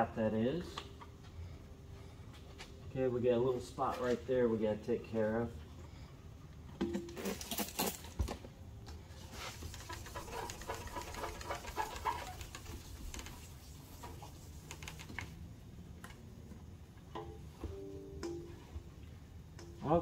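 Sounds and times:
wet sandpaper rubbing: 9.3s - 15.1s.

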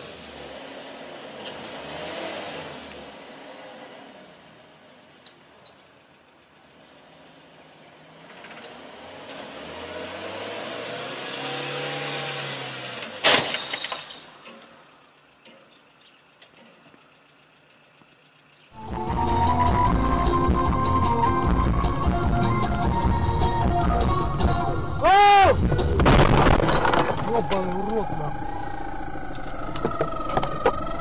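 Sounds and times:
car engine revving: 0.0s - 4.6s, 6.9s - 13.2s
vehicle collision with breaking glass: 12.1s - 15.0s, 25.8s - 27.9s.

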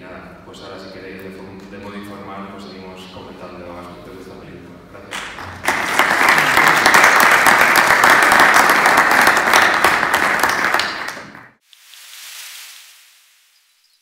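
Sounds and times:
audience applauding: 5.1s - 11.6s
faint hiss: 11.6s - 14.0s.

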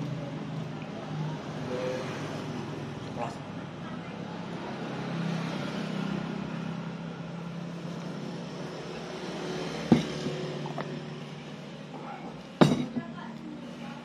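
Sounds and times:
road traffic hum: 0.0s - 14.0s
glass mug set down on table: 9.9s - 10.4s, 12.6s - 13.0s.

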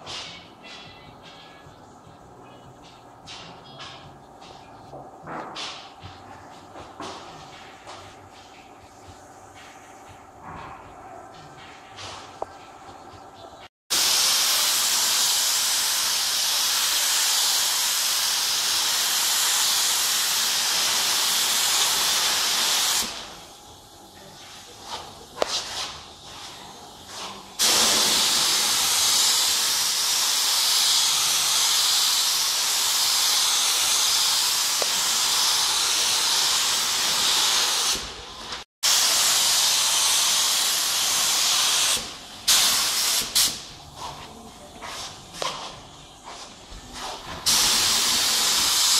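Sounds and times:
spray gun hissing: 13.9s - 23.4s, 24.4s - 38.2s, 38.8s - 44.2s, 44.8s - 48.9s.

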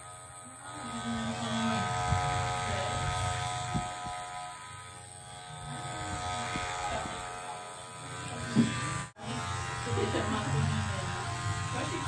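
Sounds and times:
electric hair clipper buzzing: 0.0s - 12.0s.

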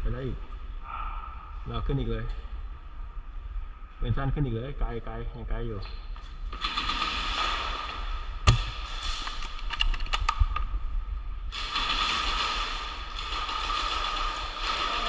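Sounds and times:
steady background hiss: 0.0s - 15.0s
airsoft rifle shot: 6.5s - 9.6s, 11.5s - 15.0s.

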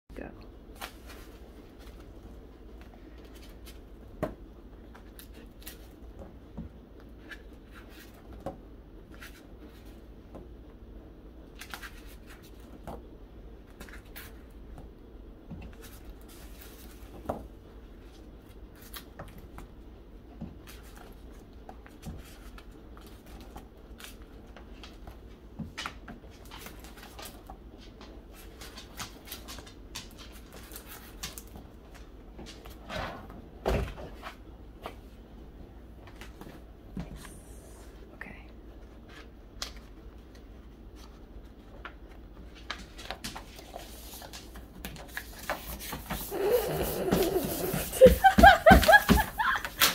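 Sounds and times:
low steady hum: 0.1s - 49.9s
plastic sleeves rustling: 38.8s - 49.9s.

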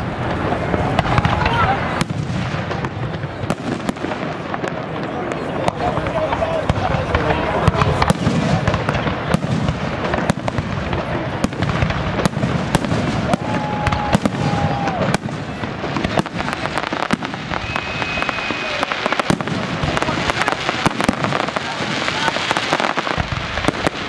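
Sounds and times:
fireworks bangs and crackles: 0.0s - 24.0s
firework whistles: 12.2s - 24.0s.

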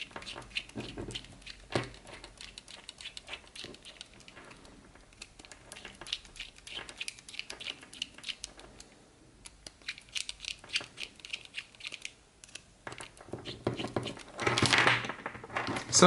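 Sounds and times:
plastic parts clicking and scratching: 0.0s - 16.0s.

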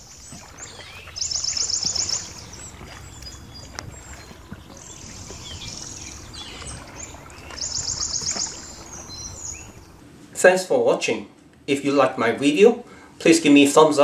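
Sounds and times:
outdoor background noise: 0.0s - 14.0s
bird trilling: 0.6s - 10.0s.

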